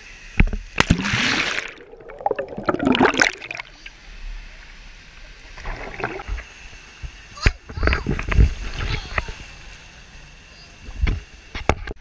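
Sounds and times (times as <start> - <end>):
water sounds of surfacing: 0.6 - 9.9
loud splash into pool: 0.8 - 3.6
muffled underwater bubbling: 0.8 - 4.0, 5.5 - 6.5.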